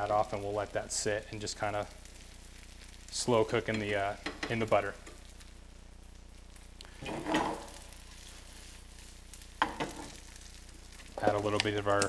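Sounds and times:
butter sizzling in frying pan: 0.0s - 12.0s
utensil scrape: 7.0s - 7.7s.

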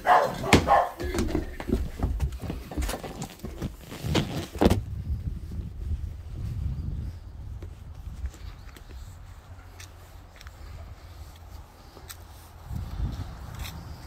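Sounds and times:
children running footsteps: 0.0s - 3.8s.

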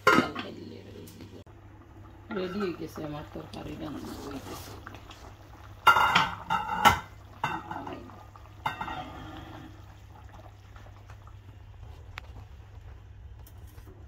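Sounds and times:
pan clattering on metal grate: 5.8s - 8.0s.

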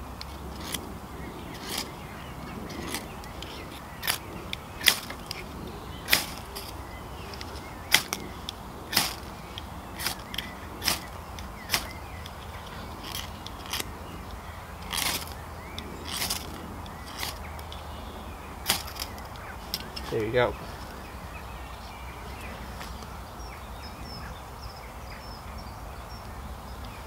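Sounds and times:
ferro rod scraping rasps: 0.0s - 17.9s, 18.5s - 21.1s.

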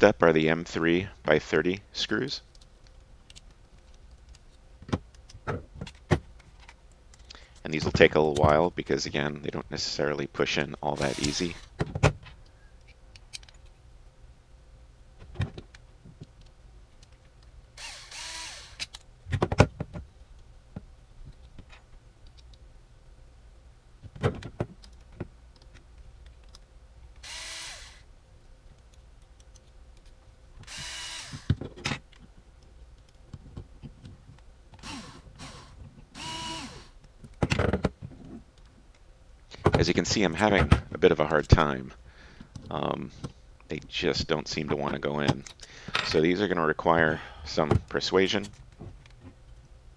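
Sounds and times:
cordless drill motor whine: 11.0s - 11.7s, 17.8s - 18.8s, 27.2s - 28.0s, 30.7s - 31.5s, 34.8s - 36.9s.

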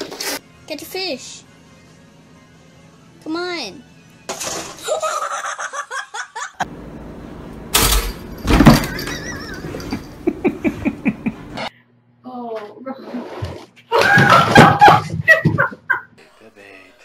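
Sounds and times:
people laughing: 4.8s - 6.6s, 9.0s - 11.7s, 13.9s - 16.2s
loud clattering crashes: 7.8s - 9.2s.

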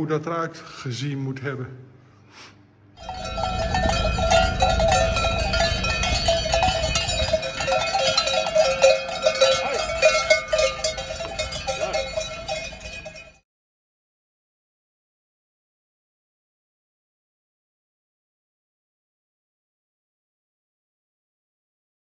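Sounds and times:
cow bells clanking: 3.0s - 13.4s.

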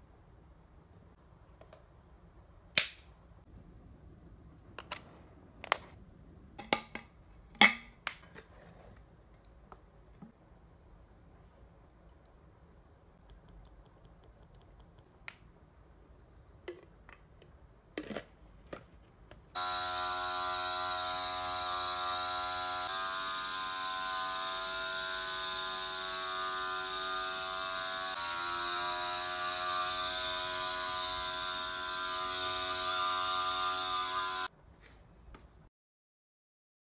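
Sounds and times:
spray gun motor whine: 19.6s - 34.5s.

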